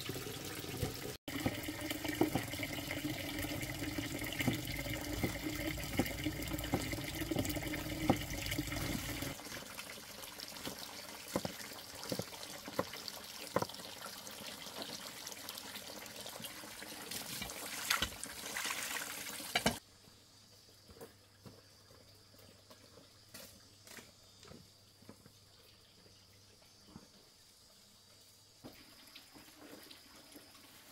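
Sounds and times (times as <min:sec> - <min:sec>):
water running and splashing: 0:00.0 - 0:19.8.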